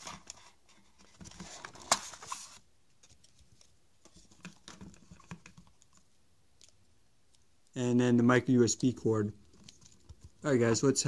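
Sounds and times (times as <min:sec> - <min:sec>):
cardboard scraping and rustling: 0:00.0 - 0:02.6.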